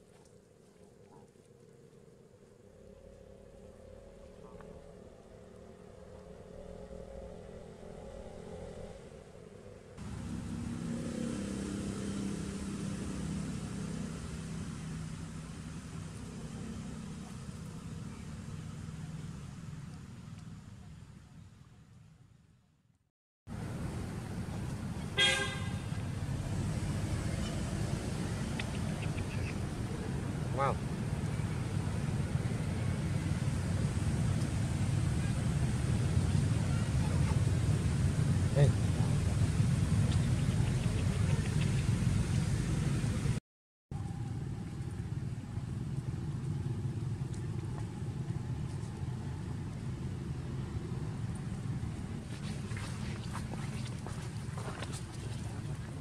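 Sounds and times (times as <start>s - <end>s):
distant traffic rumble: 0.0s - 22.0s, 23.5s - 43.4s, 44.0s - 56.0s
vehicle horn toot: 25.2s - 25.9s.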